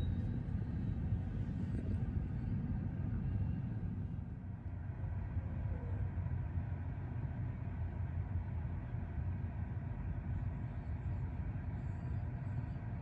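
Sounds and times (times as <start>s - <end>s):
train rumbling slowly: 0.0s - 13.0s.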